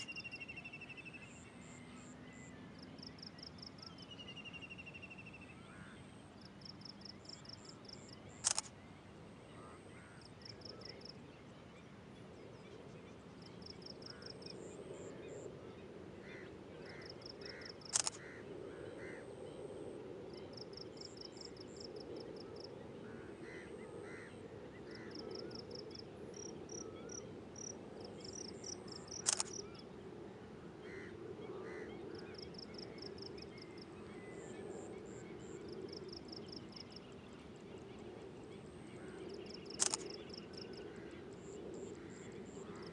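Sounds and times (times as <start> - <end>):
insects: 0.0 - 42.9
sharp clicks: 8.4 - 8.7, 17.9 - 18.2, 29.1 - 29.6, 39.6 - 40.2.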